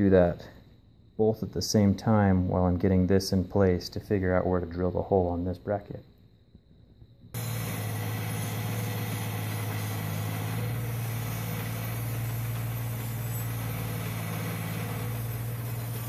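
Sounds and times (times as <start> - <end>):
bench grinder running: 7.4 - 16.0
metal scraping on grinding wheel: 7.4 - 16.0.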